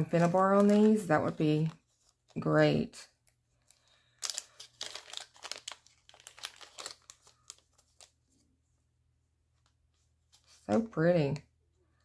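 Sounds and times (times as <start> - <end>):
plastic bag crinkling: 0.0 - 2.4, 3.6 - 8.2.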